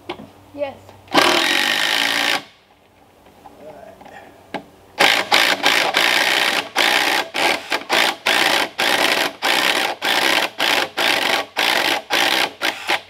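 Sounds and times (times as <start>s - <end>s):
power drill driving a screw: 1.1s - 2.5s, 5.0s - 13.0s.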